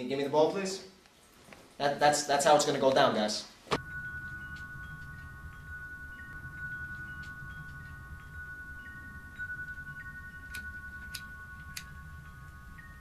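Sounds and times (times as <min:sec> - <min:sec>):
chime-like tones: 0:03.8 - 0:13.0.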